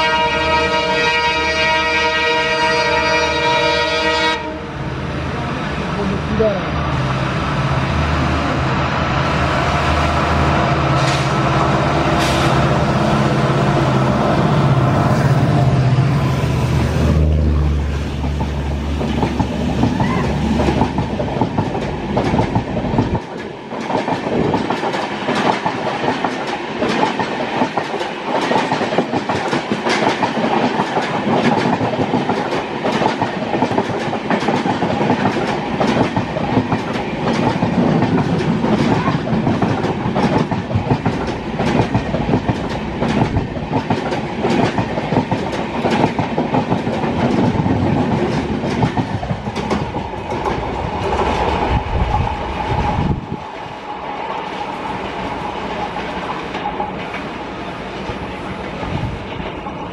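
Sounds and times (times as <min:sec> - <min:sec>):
train rumble and rush: 0:00.0 - 0:59.9
wheels clacking over rail joints: 0:18.2 - 0:52.6.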